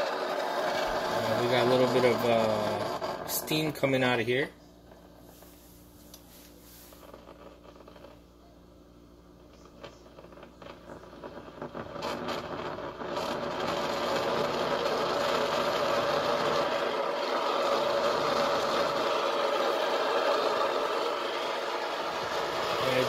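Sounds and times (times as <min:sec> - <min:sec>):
coffee maker boiling and gurgling: 0:00.0 - 0:23.0
pops and crackles: 0:06.9 - 0:08.3, 0:09.4 - 0:23.0.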